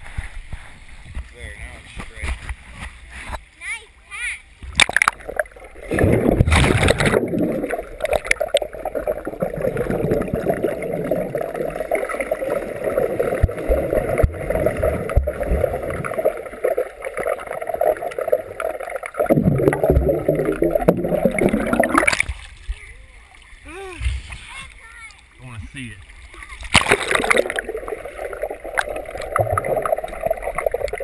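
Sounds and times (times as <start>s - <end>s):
muffled underwater water churning: 4.5s - 31.0s
loud splash: 4.8s - 8.4s, 26.6s - 31.0s
swimmers kicking and stroking: 24.0s - 31.0s.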